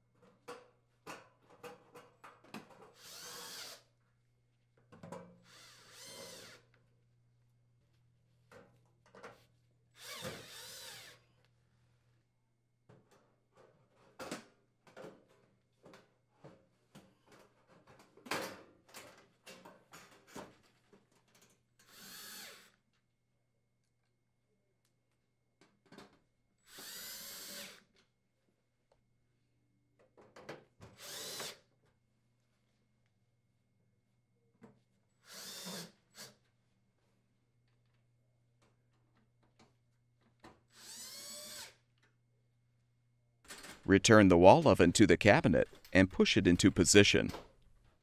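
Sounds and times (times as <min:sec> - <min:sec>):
cordless drill driving screws: 0:03.0 - 0:03.8, 0:05.5 - 0:06.6, 0:10.0 - 0:11.2, 0:21.8 - 0:22.7, 0:26.7 - 0:27.8, 0:31.0 - 0:31.6, 0:35.2 - 0:36.4, 0:40.7 - 0:41.8.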